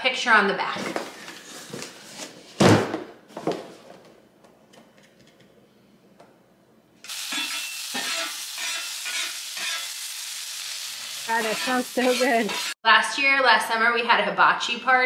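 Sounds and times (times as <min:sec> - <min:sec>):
onions sizzling on griddle: 0:07.0 - 0:12.8
metal spatula scraping: 0:07.3 - 0:10.0, 0:11.3 - 0:12.8.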